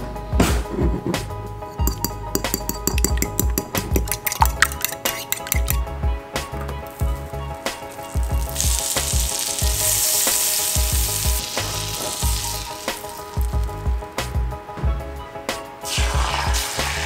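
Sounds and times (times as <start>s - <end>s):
background music with beat: 0.0s - 17.0s
butter sizzling in frying pan: 6.9s - 14.0s.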